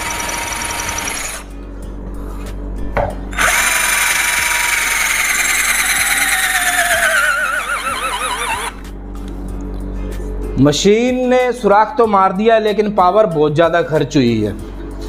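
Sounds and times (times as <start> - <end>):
cordless drill boring into wall: 0.0 - 1.5, 3.4 - 8.8.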